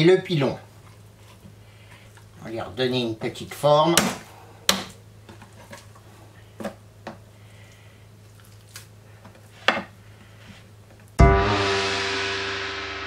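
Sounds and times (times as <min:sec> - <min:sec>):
gong stroke ringing: 0:11.2 - 0:13.0.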